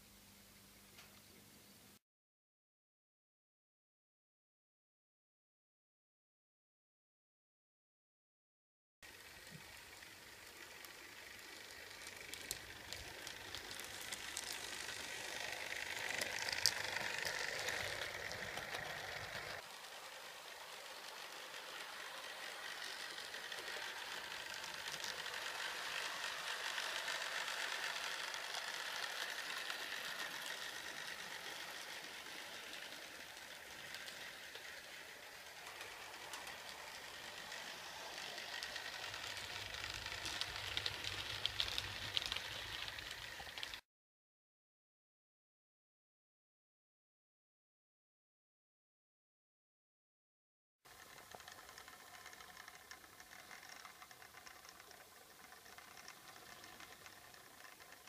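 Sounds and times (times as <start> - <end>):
small electric motors whirring: 9.1 - 43.8, 50.9 - 58.0
wheels clicking along rails: 9.1 - 43.8, 50.9 - 58.0.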